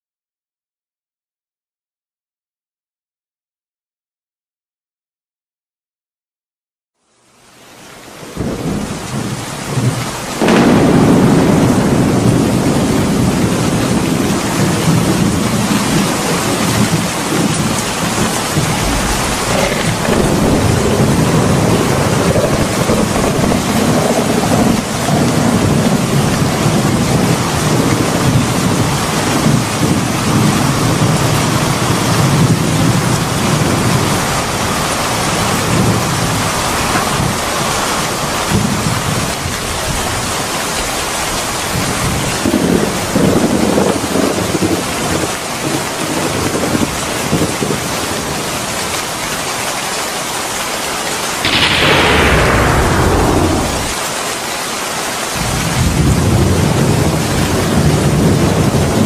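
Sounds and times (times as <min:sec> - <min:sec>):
heavy rain pouring: 0:07.1 - 0:59.0
deep rumble of thunder: 0:08.4 - 0:37.7, 0:41.8 - 0:48.4, 0:51.5 - 0:54.3, 0:55.4 - 0:59.0.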